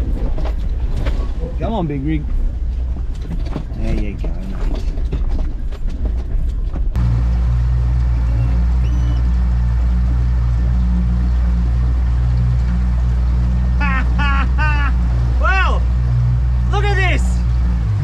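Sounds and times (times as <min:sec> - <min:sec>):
vehicle cabin rumble: 0:00.0 - 0:18.0
rushing water and wind: 0:06.9 - 0:18.0
outboard motor running: 0:07.0 - 0:18.0.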